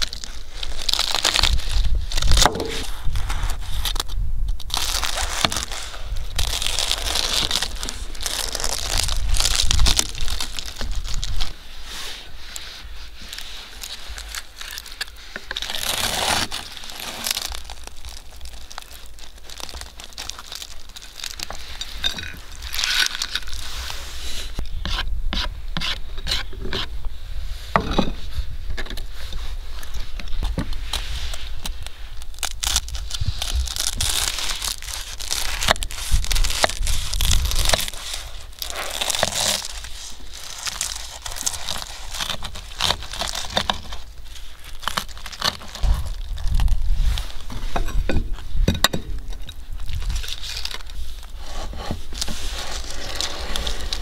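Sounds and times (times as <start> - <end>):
knife cracking through crisp crust: 0.0 - 11.5, 13.9 - 23.7, 31.5 - 47.5
blade scraping on wooden board: 51.4 - 54.0.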